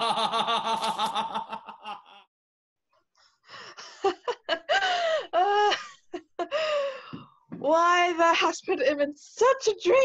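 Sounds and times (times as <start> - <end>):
people laughing: 0.0 - 2.2.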